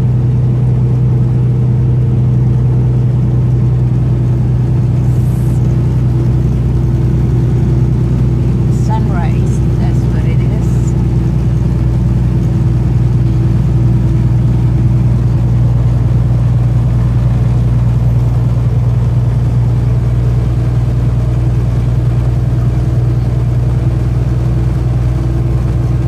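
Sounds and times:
road noise: 0.0s - 26.0s
truck engine drone: 0.0s - 26.0s.

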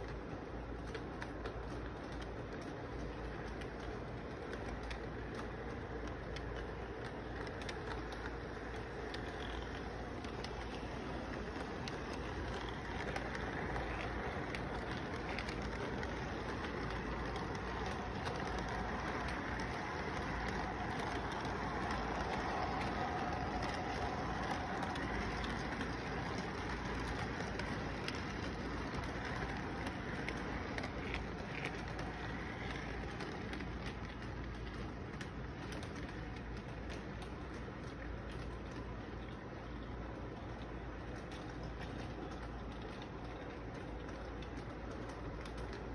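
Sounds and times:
toy train cars rumbling: 0.0s - 45.9s.

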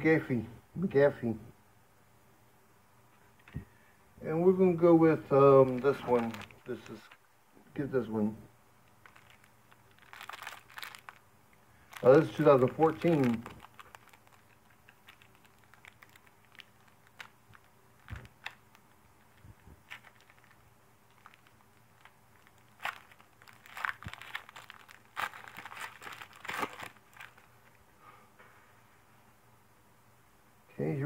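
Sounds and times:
wrapper crinkling and tearing: 5.4s - 7.2s, 8.8s - 11.2s, 11.8s - 27.8s.

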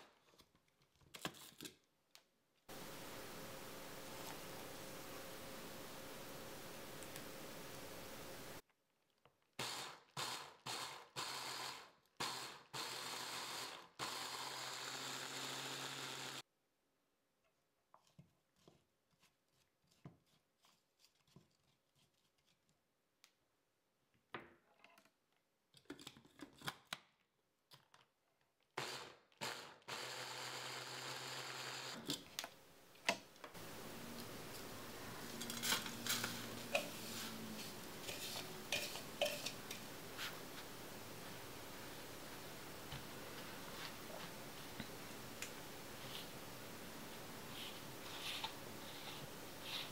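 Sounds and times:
electric chopper whirring: 14.0s - 16.4s.

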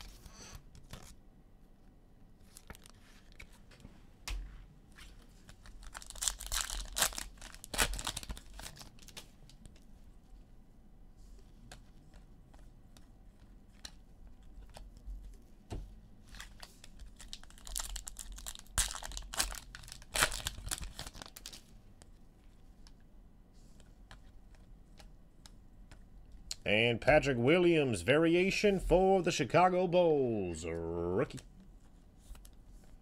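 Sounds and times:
card pack wrapper crinkling: 5.5s - 9.3s, 16.3s - 21.7s.

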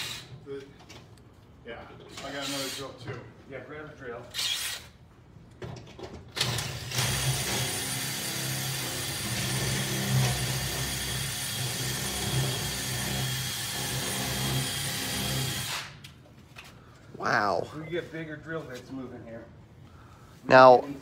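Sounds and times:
drill boring into metal: 2.1s - 3.0s, 6.4s - 15.9s.

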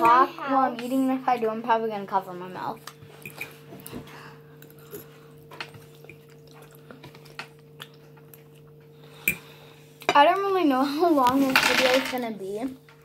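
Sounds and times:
low electrical hum: 0.0s - 13.0s
soft chewing: 2.7s - 10.1s.

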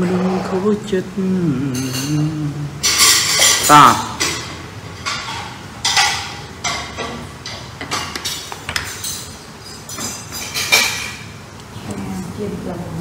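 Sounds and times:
kitchen utensils knocking and clinking: 2.8s - 11.4s.

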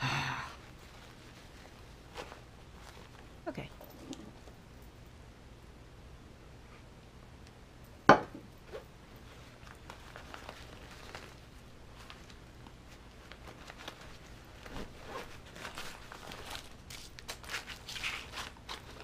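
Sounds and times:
nylon pouch rustling and clicking: 0.6s - 3.3s, 8.6s - 19.0s
glass tumbler set down on desk: 8.1s - 8.4s.

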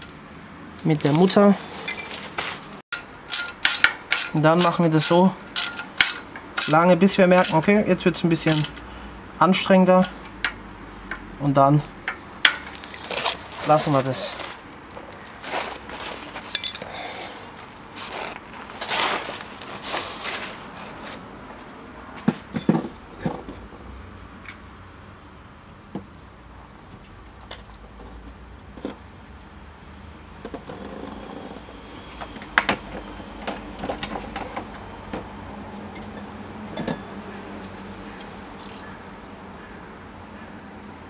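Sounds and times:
hand tools clinking on metal: 1.0s - 2.3s, 3.0s - 7.7s, 8.4s - 8.8s, 16.4s - 17.1s, 22.5s - 23.4s, 36.0s - 37.2s.

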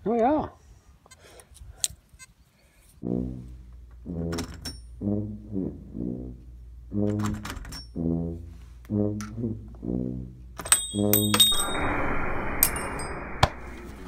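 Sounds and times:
low brass notes: 3.0s - 14.0s.

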